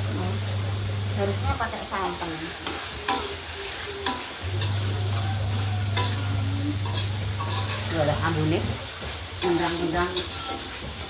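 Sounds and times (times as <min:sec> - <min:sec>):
frying sizzle: 0:00.0 - 0:11.0
metal spatula scraping wok: 0:01.8 - 0:11.0.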